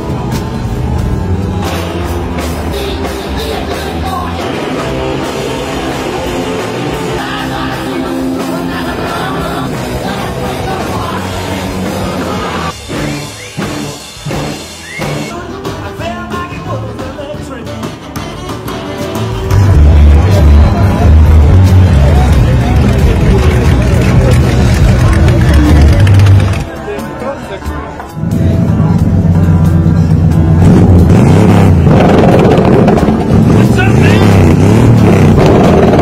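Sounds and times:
rock music with singing: 0.0 - 36.0.

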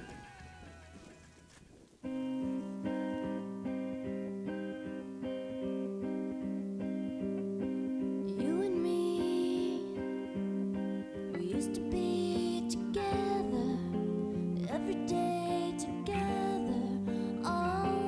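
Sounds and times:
strummed guitar chords: 2.0 - 18.0
person singing: 8.1 - 10.6, 11.2 - 18.0.

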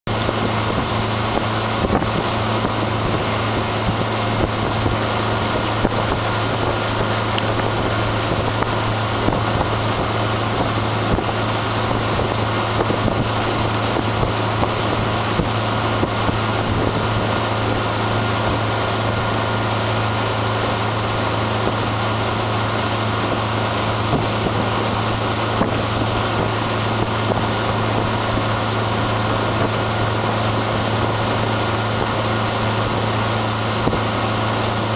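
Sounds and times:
outboard motor droning: 0.1 - 34.9
wake rushing: 0.1 - 34.9
wind buffeting microphone: 0.1 - 34.9.

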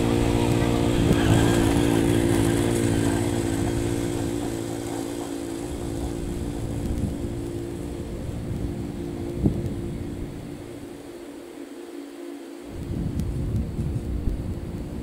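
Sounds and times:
lawn aerator engine running: 0.0 - 11.6.

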